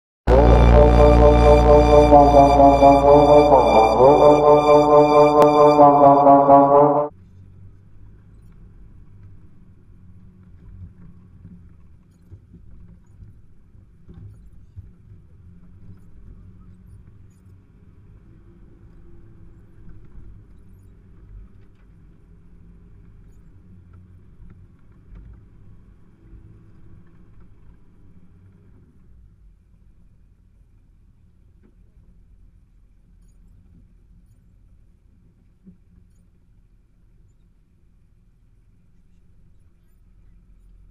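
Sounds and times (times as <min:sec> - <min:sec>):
music: 0:00.3 - 0:07.1.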